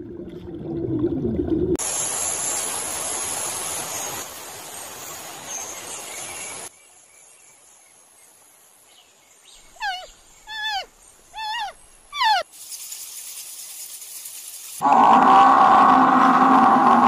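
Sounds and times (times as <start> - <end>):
outdoor ambience hiss: 1.8 - 14.8
animal calling: 9.7 - 12.5.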